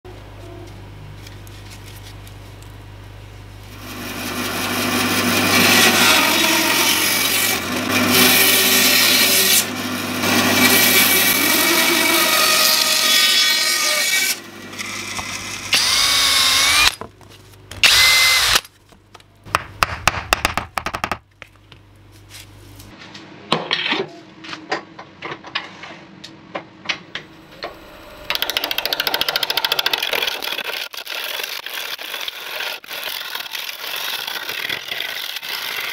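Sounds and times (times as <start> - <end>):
gouge cutting wood on lathe: 3.7 - 17.0, 27.5 - 35.9
power tool cutting wood: 3.7 - 17.0, 17.8 - 18.7, 27.4 - 35.9
drill boring into wood: 10.3 - 17.0, 17.8 - 18.6, 27.5 - 35.9.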